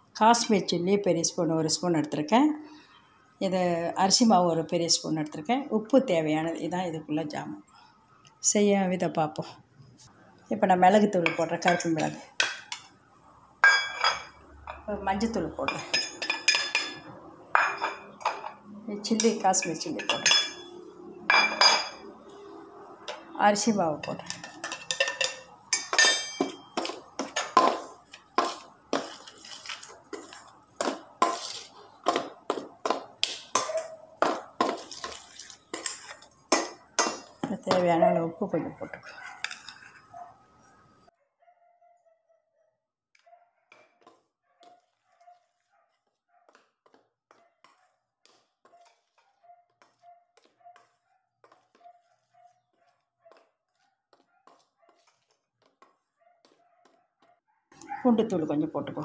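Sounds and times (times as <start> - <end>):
spoon scraping metal bowl: 15.6 - 22.4, 23.0 - 37.9, 38.7 - 40.8, 47.6 - 57.0.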